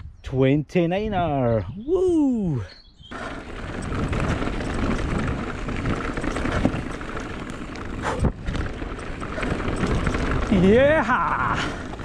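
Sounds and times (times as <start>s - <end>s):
wind noise on microphone: 0.0s - 12.0s
stones and bike rattling: 3.0s - 12.0s
bike tyres crunching on gravel: 3.1s - 12.0s.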